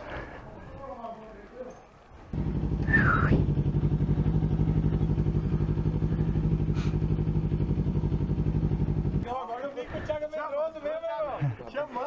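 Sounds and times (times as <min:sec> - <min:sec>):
motorcycle engine idling: 0:02.3 - 0:10.2.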